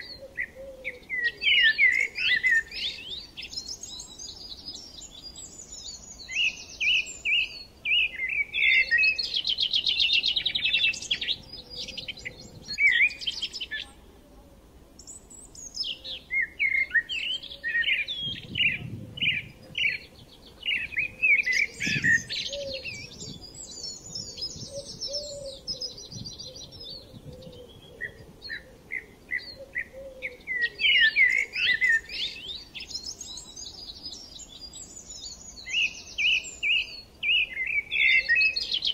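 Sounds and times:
songbirds chirping and trilling: 0.0s - 38.9s.

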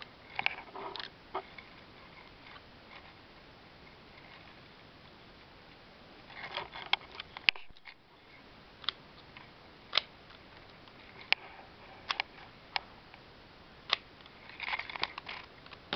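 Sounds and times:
faint steady hiss: 0.0s - 15.9s
plastic pieces clicking and rattling: 13.9s - 15.8s.

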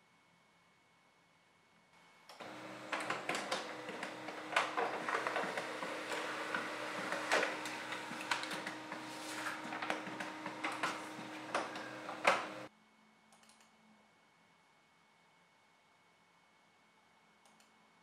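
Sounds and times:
laser printer humming: 2.4s - 12.7s
paper crackling and rustling: 2.4s - 12.7s.

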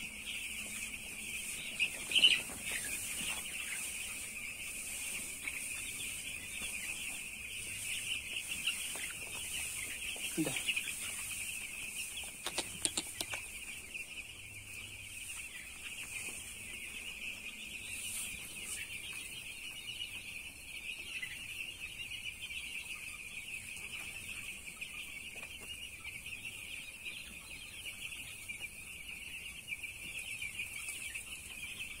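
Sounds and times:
chicks peeping: 0.0s - 32.0s
sharp clicks: 12.4s - 13.4s.

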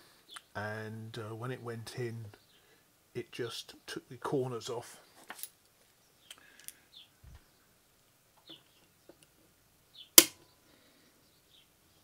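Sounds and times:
sharp metallic click: 10.2s - 10.4s.

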